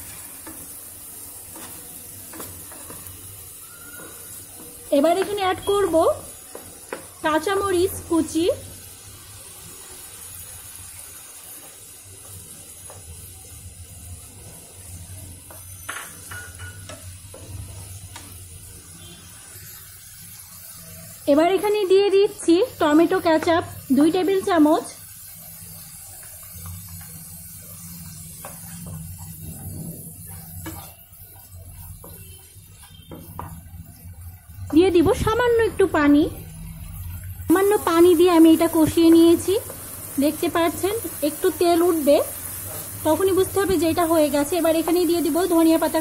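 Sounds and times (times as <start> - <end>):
sauce sizzling in a pan: 0.0 - 46.0
wooden spatula scraping: 28.0 - 33.5.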